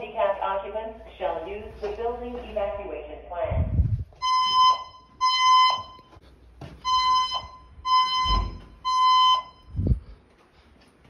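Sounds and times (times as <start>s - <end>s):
fire alarm evacuation beeps: 4.1s - 6.2s, 6.8s - 10.0s.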